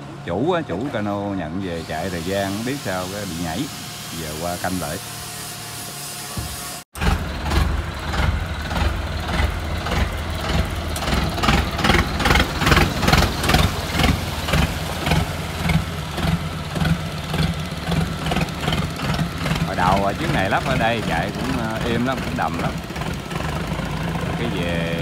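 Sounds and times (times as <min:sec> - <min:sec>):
pulsing motorboat engine: 0:00.0 - 0:25.0.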